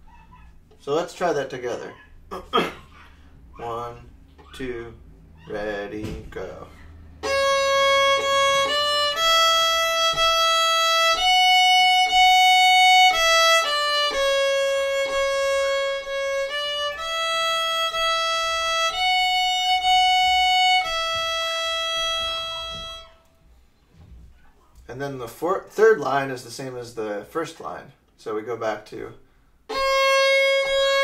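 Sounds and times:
solo violin folk melody: 0:07.2 - 0:23.3, 0:29.7 - 0:31.0.

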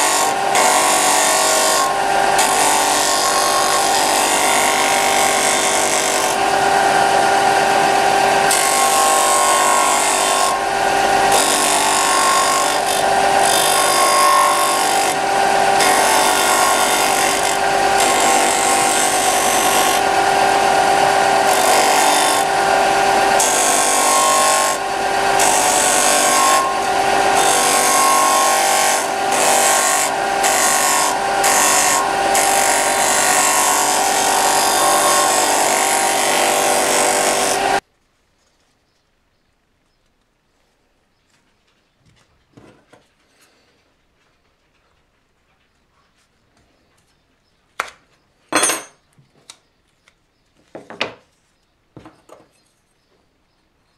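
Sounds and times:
electric power tool on wood: 0:00.0 - 0:37.8.

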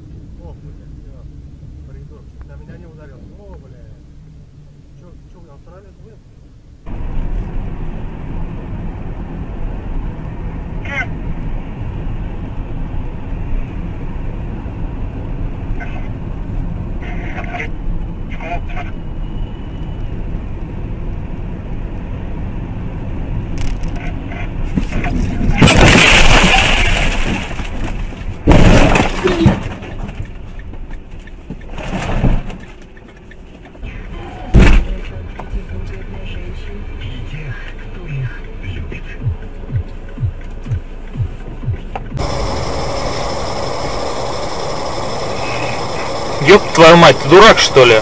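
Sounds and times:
road noise: 0:00.0 - 0:48.0
vehicle engine rumble: 0:00.0 - 0:48.0
car crash impact: 0:24.8 - 0:30.2.

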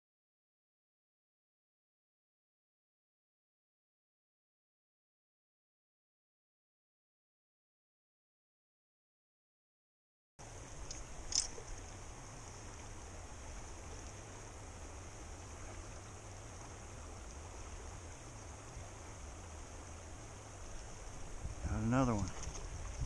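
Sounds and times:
river flowing over rocks: 0:10.4 - 0:23.0.

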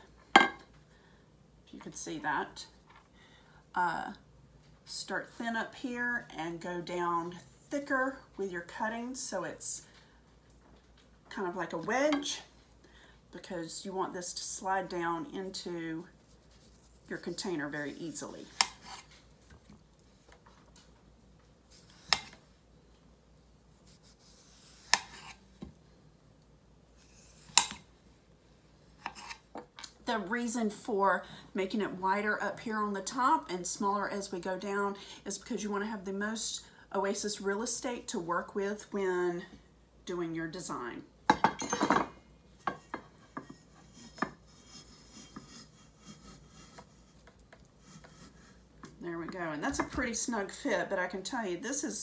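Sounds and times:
knife slicing through floral foam: 0:18.4 - 0:19.2, 0:23.8 - 0:25.4, 0:43.6 - 0:48.6.

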